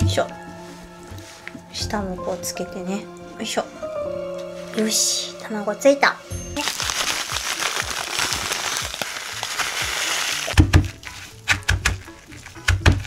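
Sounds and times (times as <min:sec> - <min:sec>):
breadcrumbs crackling and rustling: 0:06.6 - 0:13.0.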